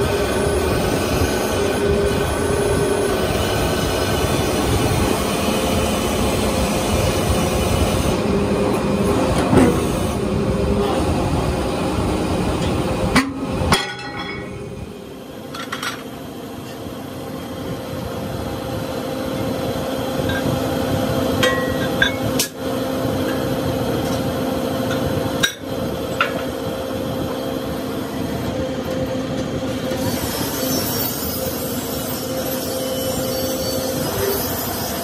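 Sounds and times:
metal clanks and knocks: 0:12.6 - 0:14.7, 0:15.5 - 0:16.1.

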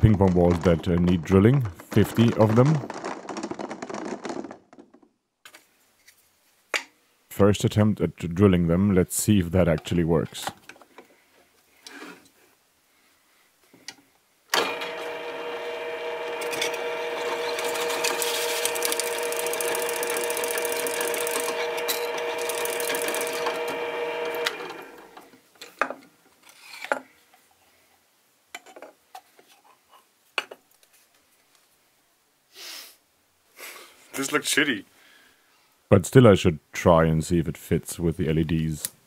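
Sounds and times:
plastic clicks and knocks: 0:00.0 - 0:05.1
drill press whining: 0:14.5 - 0:25.4.

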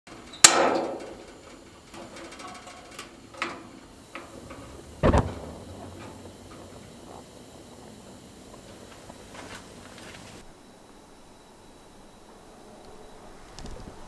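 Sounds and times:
metallic clank: 0:00.2 - 0:10.4
gas burner whump: 0:02.8 - 0:10.4.

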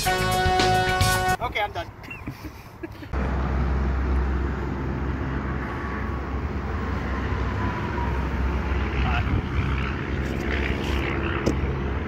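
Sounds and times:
traffic rumble: 0:01.3 - 0:12.0
distant aircraft drone: 0:03.2 - 0:12.0.

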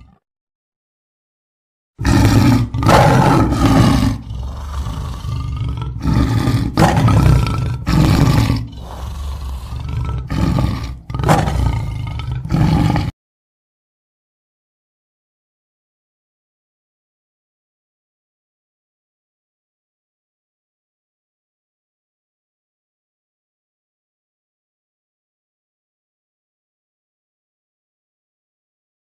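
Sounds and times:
big cat roaring: 0:02.0 - 0:13.2.

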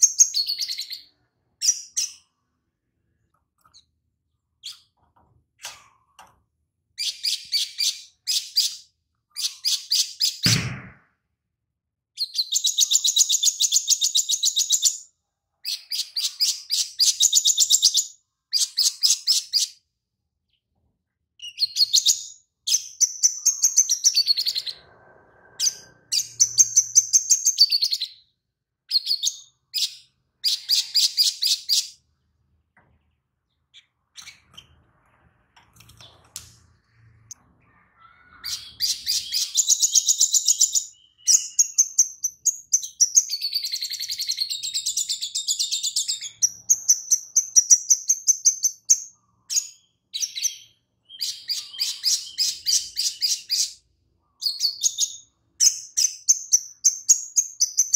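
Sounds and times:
bird singing fast high song: 0:00.0 - 0:02.4, 0:12.2 - 0:19.8, 0:36.9 - 0:57.9.

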